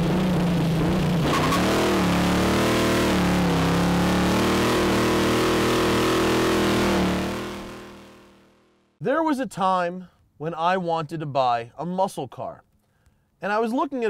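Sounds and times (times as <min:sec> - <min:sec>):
tires spinning: 0:00.0 - 0:08.3
car engine at high revs: 0:00.0 - 0:08.6.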